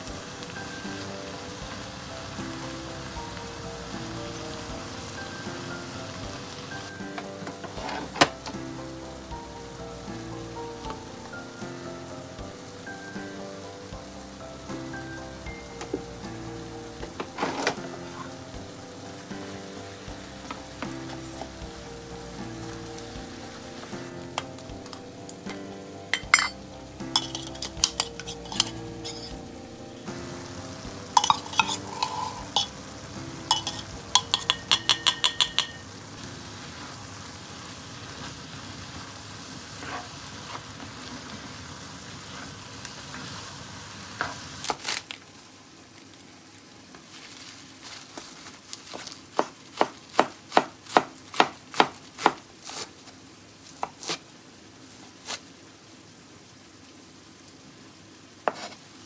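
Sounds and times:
meat and vegetables sizzling in a pan: 0:00.0 - 0:59.0
spatula scraping and knocking a pan: 0:26.2 - 0:29.4, 0:31.2 - 0:32.8, 0:33.5 - 0:35.8.

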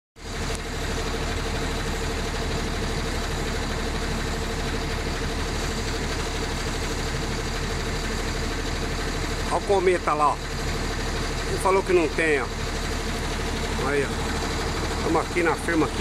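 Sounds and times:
heavy vehicle engines idling: 0:00.2 - 0:16.0.

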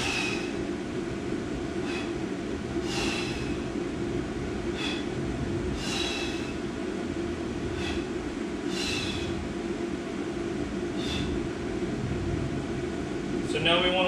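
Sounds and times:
man breathing: 0:00.0 - 0:00.8, 0:01.7 - 0:03.9, 0:04.6 - 0:06.8, 0:07.6 - 0:09.6, 0:10.9 - 0:11.6
low room hum: 0:00.0 - 0:14.0.

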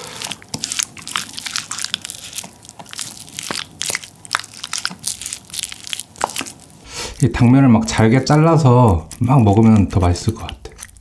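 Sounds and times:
chewing: 0:00.0 - 0:11.0.

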